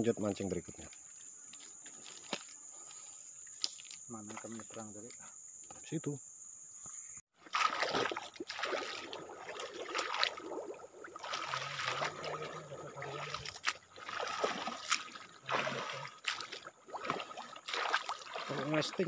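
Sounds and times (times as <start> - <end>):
water sloshing around wading legs: 7.4 - 19.0.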